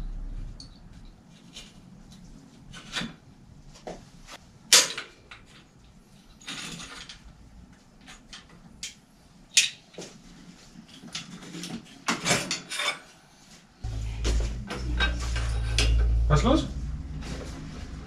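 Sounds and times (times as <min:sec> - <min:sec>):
bicycle parts and tools clattering: 0:04.6 - 0:18.0
steady low rumble: 0:13.8 - 0:18.0.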